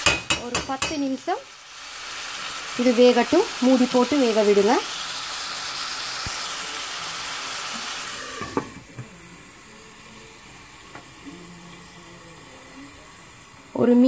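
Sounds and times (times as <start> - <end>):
meat sizzling in oil: 0.0 - 14.0.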